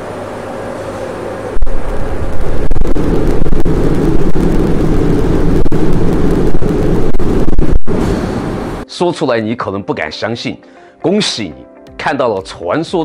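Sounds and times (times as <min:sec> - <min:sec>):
loud rumbling roar: 0:00.0 - 0:08.8
sharp crackles: 0:01.6 - 0:08.8.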